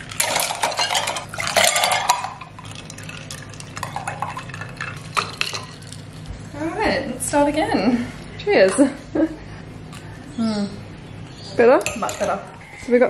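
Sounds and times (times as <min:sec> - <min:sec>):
ice clattering against glass: 0:00.0 - 0:06.0
liquid splashing: 0:00.0 - 0:06.3
soda water pouring: 0:00.0 - 0:06.3.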